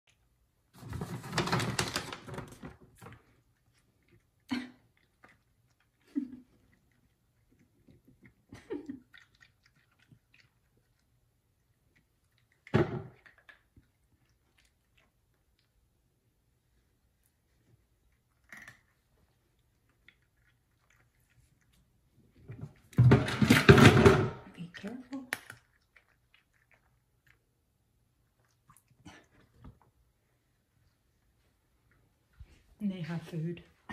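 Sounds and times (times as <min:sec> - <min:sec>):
cat crunching dry kibble: 0:24.6 - 0:27.5.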